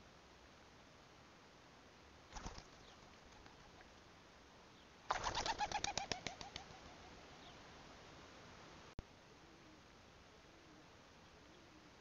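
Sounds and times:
pigeons' wings flapping: 2.3 - 3.9, 5.1 - 7.1.

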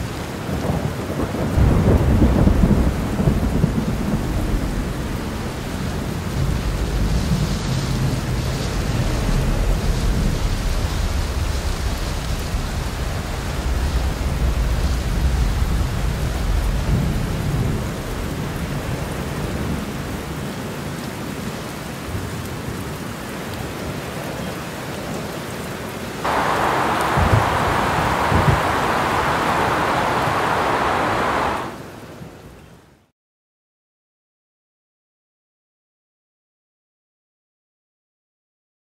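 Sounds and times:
steady rain: 0.0 - 33.1
thunder rumbling: 0.6 - 18.2, 26.2 - 32.0.

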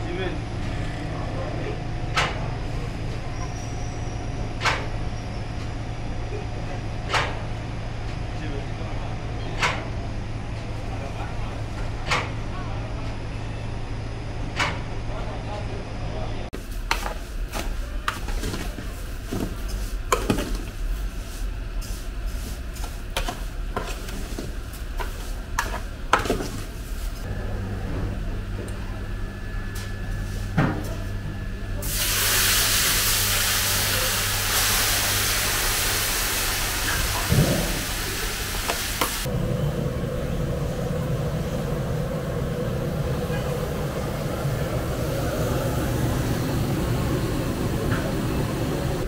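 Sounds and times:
loud cooking hiss: 31.8 - 49.0
low hum: 39.3 - 49.0.

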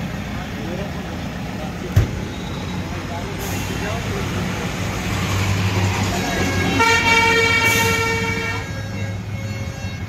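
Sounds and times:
tractor diesel engine idling: 0.0 - 10.0
vehicle horn toot: 6.4 - 10.0.

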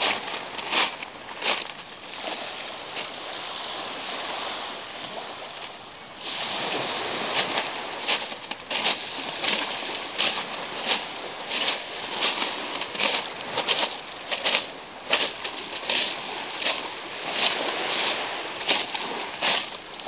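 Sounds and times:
footsteps crunching on pebbles: 0.0 - 3.1, 7.4 - 20.0
waves washing on pebble beach: 0.0 - 20.0.

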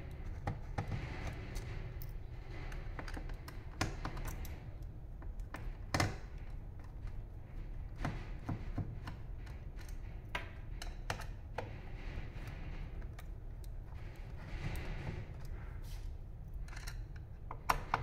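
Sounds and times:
screwdriver clicking on plastic: 16.7 - 18.0.

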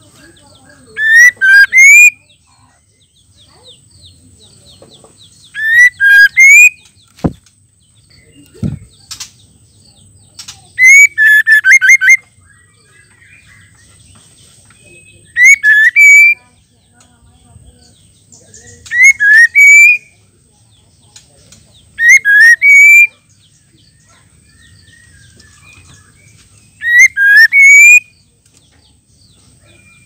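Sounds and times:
bird whistling phrases: 1.0 - 2.3, 5.5 - 6.9, 10.7 - 12.3, 15.0 - 16.4, 18.8 - 20.1, 22.0 - 23.2, 24.5 - 28.2.

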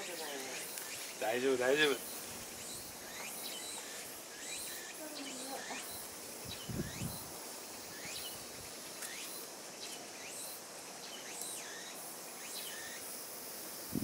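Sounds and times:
insects hissing: 0.0 - 14.0
bird calling: 1.8 - 7.1.

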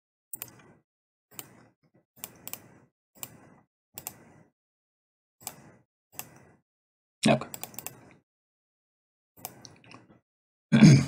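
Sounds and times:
computer mouse clicks: 0.4 - 4.4, 5.4 - 6.6, 7.4 - 8.2, 9.4 - 10.1.

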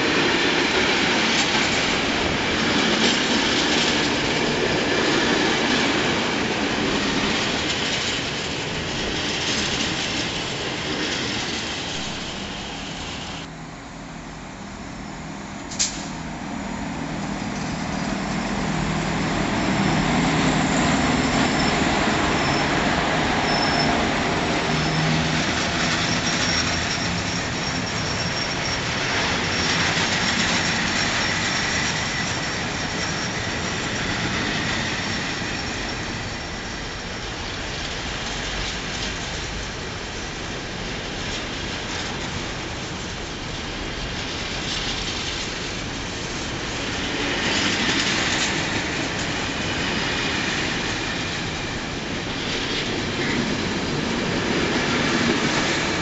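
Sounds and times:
locomotive humming: 0.0 - 56.0
train wagons rumbling past: 15.0 - 56.0
train wheels squealing: 17.4 - 42.6, 44.2 - 56.0.

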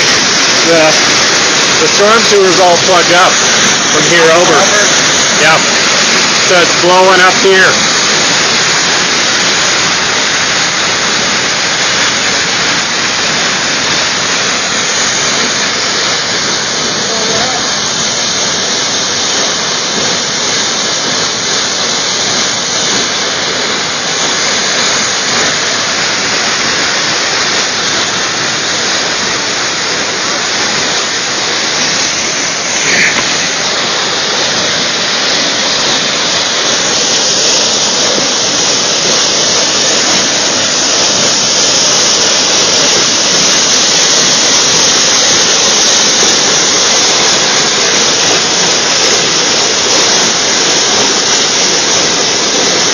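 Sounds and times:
water gushing from manhole: 0.0 - 52.9.

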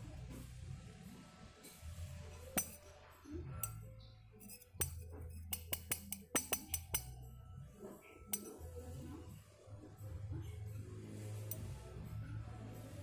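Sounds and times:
spoon and chopsticks clinking bowls: 2.5 - 2.8, 3.6 - 7.2, 8.2 - 8.9.

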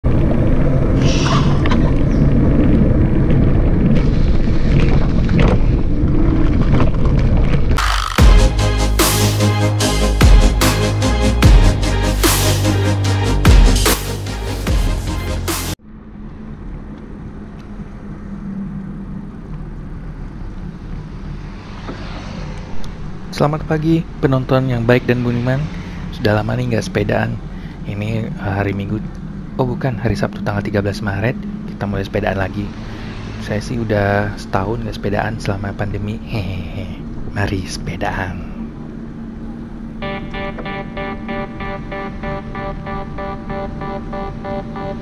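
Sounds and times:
wind and road noise: 0.0 - 11.6, 15.7 - 45.0
brief high-pitched sound: 40.0 - 45.0.

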